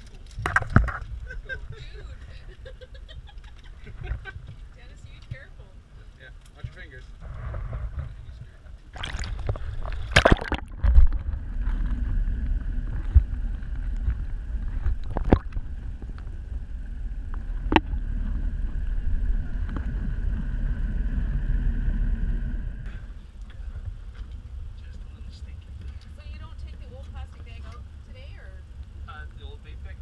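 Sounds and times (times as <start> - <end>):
faint steady whine: 0.0 - 30.0
muffled underwater rumble: 0.0 - 30.0
camera splashing into water: 8.9 - 12.0, 14.8 - 16.2.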